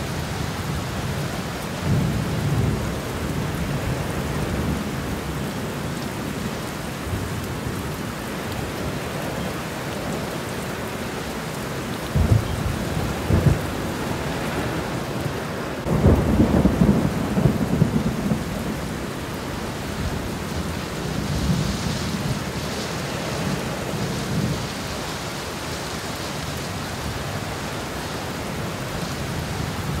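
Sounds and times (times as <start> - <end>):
heavy rain on street: 0.0 - 30.0
thunder rumbling: 12.0 - 24.8.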